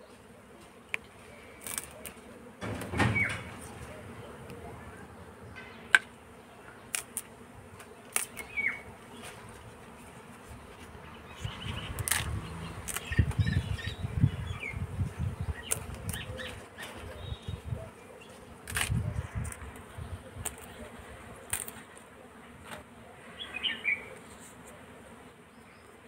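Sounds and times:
leaves snapping off stalks: 0:00.9 - 0:04.0, 0:06.9 - 0:09.4, 0:11.8 - 0:13.5, 0:15.6 - 0:17.0, 0:18.6 - 0:19.8, 0:20.4 - 0:20.8, 0:21.4 - 0:22.0
leaves rustling in wicker basket: 0:01.3 - 0:04.2, 0:08.0 - 0:13.9.

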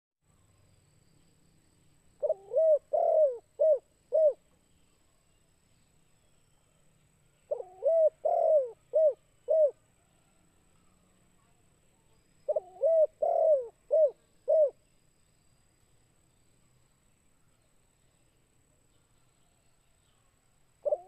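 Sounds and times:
dove cooing: 0:02.2 - 0:04.4, 0:07.5 - 0:09.8, 0:12.5 - 0:14.8.

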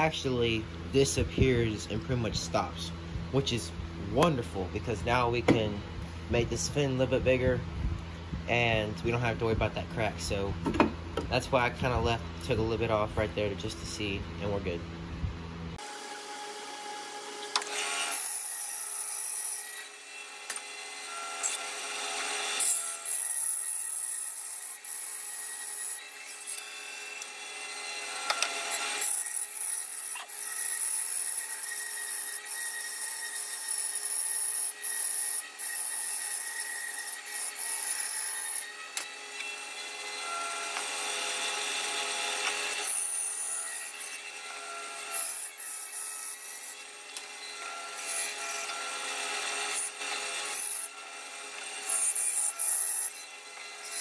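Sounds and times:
bandsaw cutting wood: 0:15.8 - 0:54.0.

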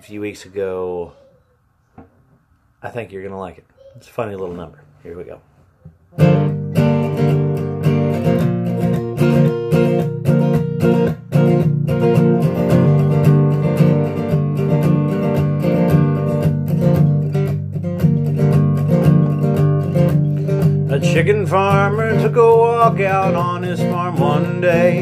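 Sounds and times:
acoustic guitar strumming: 0:06.2 - 0:25.0.

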